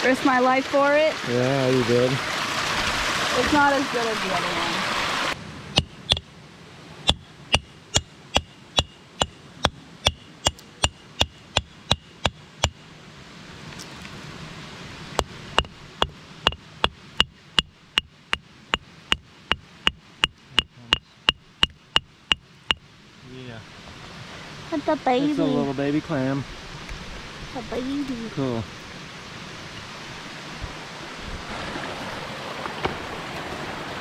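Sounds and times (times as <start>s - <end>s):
hammer tapping on stone: 5.8s - 6.2s, 7.1s - 12.8s, 15.6s - 22.4s.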